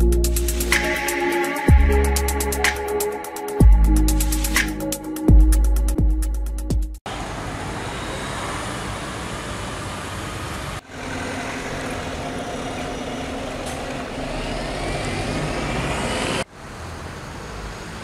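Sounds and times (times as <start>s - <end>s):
cars passing: 7.1s - 18.0s.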